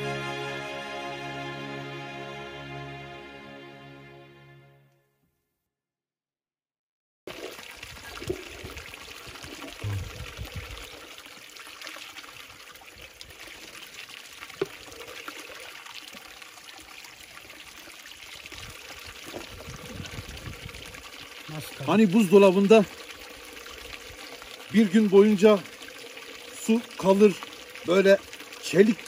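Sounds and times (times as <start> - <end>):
stream water rushing: 7.3 - 29.0.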